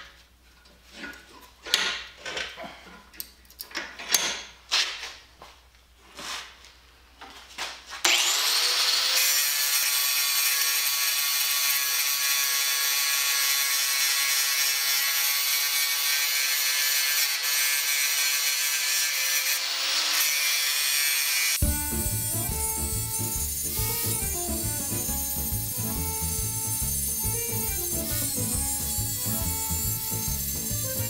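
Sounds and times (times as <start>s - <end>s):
angle grinder grinding metal: 8.0s - 31.0s
music: 21.6s - 31.0s.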